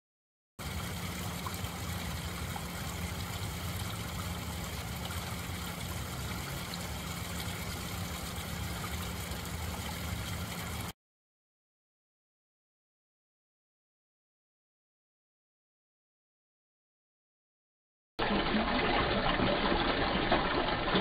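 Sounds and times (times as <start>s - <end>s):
waterfall splashing into pond: 0.6s - 11.0s, 18.2s - 21.0s.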